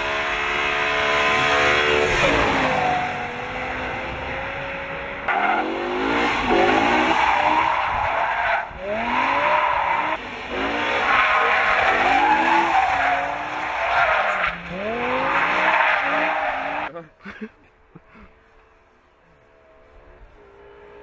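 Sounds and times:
car engine revving: 0.0 - 16.9.

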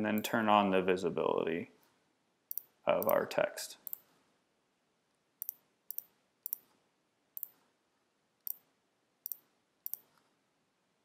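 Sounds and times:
computer mouse clicks: 2.5 - 3.2, 3.8 - 4.1, 5.4 - 6.7, 7.4 - 7.6, 8.4 - 10.3.

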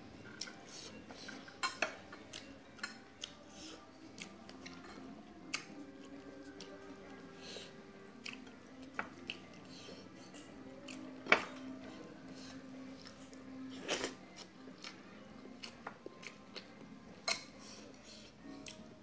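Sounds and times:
chewing and lip smacks: 2.2 - 6.9, 8.2 - 11.1, 15.6 - 18.9.

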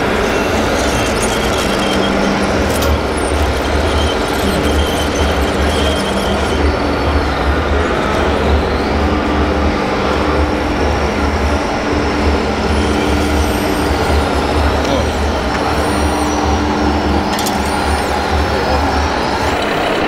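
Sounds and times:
thin high whines: 0.0 - 8.8.

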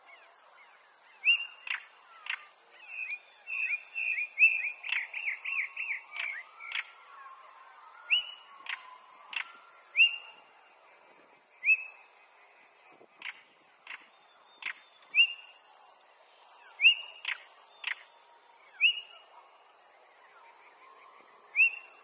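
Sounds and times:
bird clicking calls: 1.2 - 2.6, 4.4 - 7.0, 8.1 - 10.2, 13.2 - 15.3, 16.8 - 18.1
bird whistled calls: 1.2 - 7.3, 8.0 - 10.5, 11.6 - 12.1, 13.2 - 15.6, 16.7 - 18.1, 18.7 - 19.2, 21.5 - 22.0.

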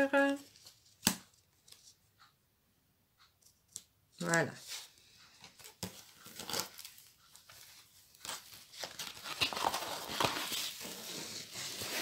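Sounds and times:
packaging rustling and crinkling: 5.4 - 12.0.

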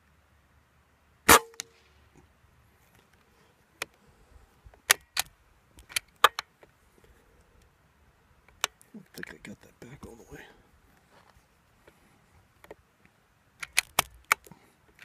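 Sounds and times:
air rifle shot: 1.3 - 1.9
rifle bolt clicks: 4.9 - 6.5, 13.6 - 15.0.

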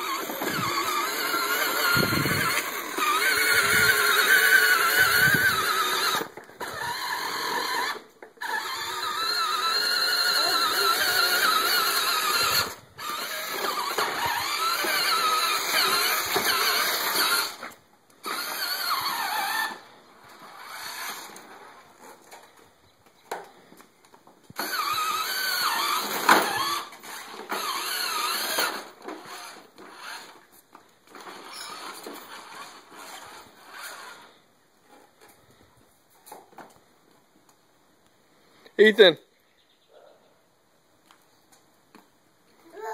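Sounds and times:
toy electric motor whining: 0.0 - 22.7, 24.5 - 34.5.

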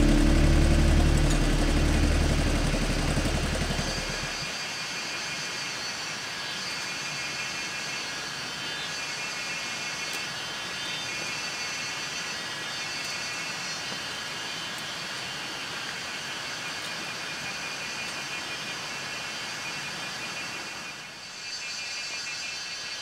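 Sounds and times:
low drone: 0.0 - 4.5
outdoor ambience hiss: 0.0 - 23.0.

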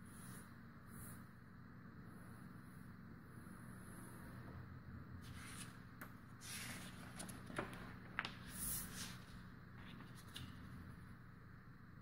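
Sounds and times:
paper rustling and sliding on table: 5.2 - 5.8, 6.4 - 10.8
paper crackles: 6.4 - 10.7
hands sweeping over paper: 8.4 - 10.4.

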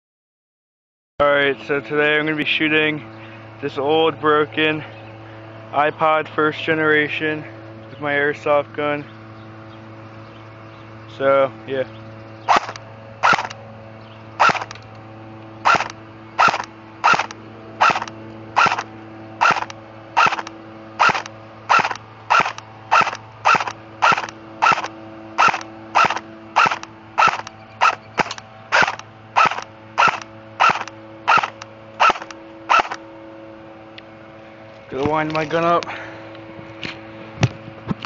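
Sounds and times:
airsoft rifle single shots: 12.5 - 13.6, 19.4 - 33.0.

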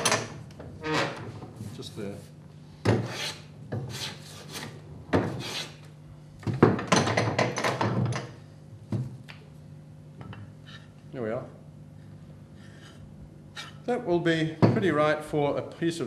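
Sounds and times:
hand tool rasping on timber: 3.0 - 4.6.

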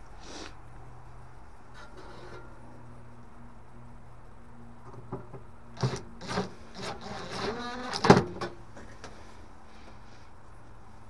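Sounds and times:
steady low hum: 0.0 - 11.0
scrape with a squeak: 1.8 - 2.6, 5.8 - 8.4.

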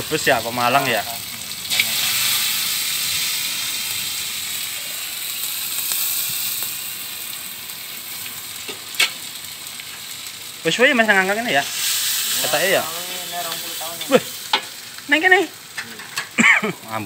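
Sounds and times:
egg sizzling in oil: 0.0 - 17.0.

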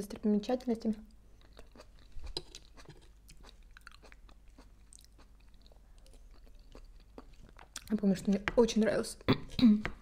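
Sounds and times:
person chewing salad crunching: 1.2 - 8.0.

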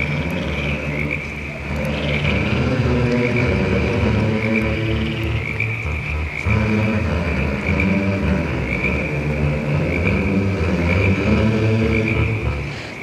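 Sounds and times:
deep rumbling drone: 0.0 - 13.0.

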